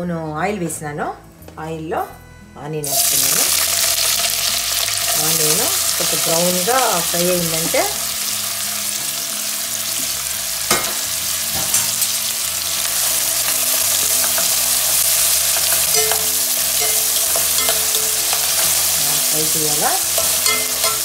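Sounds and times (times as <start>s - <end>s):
onions sizzling in hot oil: 2.8s - 21.0s
metal utensil stirring in pot: 13.0s - 21.0s.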